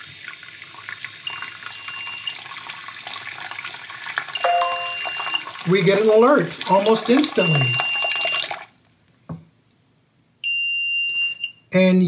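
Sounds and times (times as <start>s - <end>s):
tap water running into sink: 0.0s - 8.7s
high steady alarm beeps: 4.4s - 5.4s, 7.4s - 8.4s, 10.5s - 11.5s.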